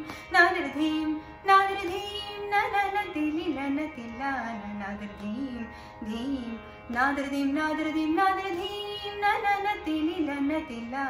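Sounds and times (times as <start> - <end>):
woman singing: 0.0 - 11.0.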